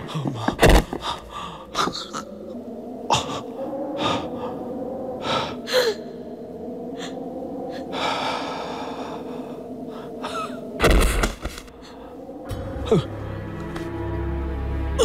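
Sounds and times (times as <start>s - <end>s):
person gasping for breath: 0.0s - 2.3s, 5.2s - 6.2s
low steady drone: 0.0s - 15.0s.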